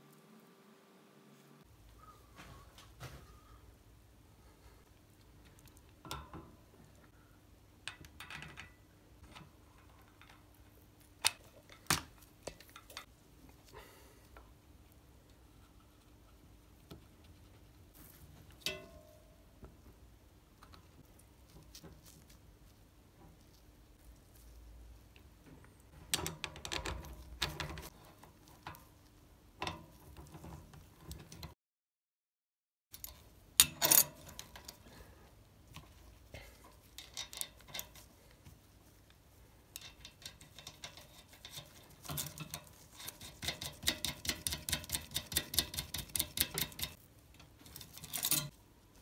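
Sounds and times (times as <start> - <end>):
small metal clicks and taps: 35.7 - 38.0, 39.7 - 48.6
metal parts clinking: 47.6 - 48.6.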